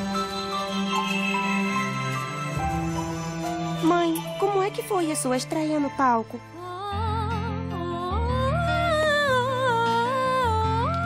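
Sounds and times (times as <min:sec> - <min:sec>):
low sustained accompaniment: 0:00.0 - 0:07.1
woman singing wordless melody: 0:03.8 - 0:11.0.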